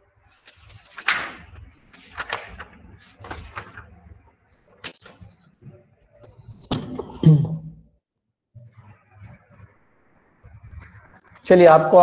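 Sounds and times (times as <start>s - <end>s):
rustling and handling noises: 0.4s - 4.0s.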